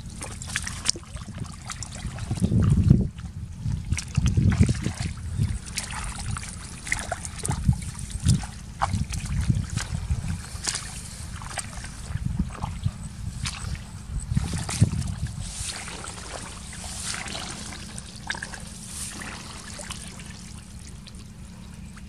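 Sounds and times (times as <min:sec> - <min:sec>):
boots squelching through mud: 0:00.0 - 0:22.0
low uneven rumble: 0:00.0 - 0:22.0
wet clicks and splashes: 0:00.1 - 0:02.6, 0:03.9 - 0:12.8, 0:13.4 - 0:22.0
hands rummaging in muddy grass: 0:05.5 - 0:22.0.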